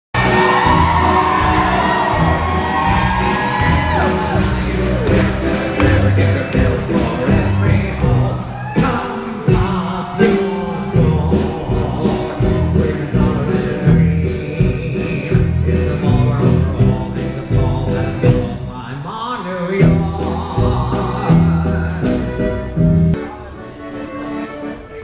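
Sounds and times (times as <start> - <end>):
heavy bass beat: 0.2 - 9.9, 19.8 - 23.2
person singing: 0.2 - 23.9.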